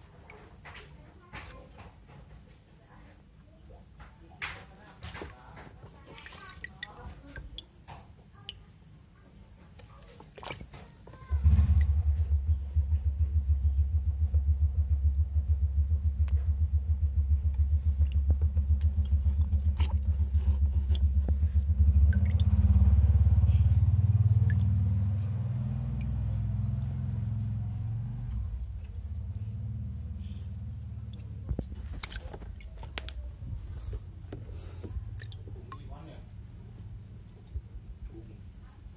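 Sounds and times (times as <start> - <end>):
small clicks and drips: 4.0 - 33.3, 33.9 - 37.7
low pulsing engine-like rumble: 11.2 - 38.9.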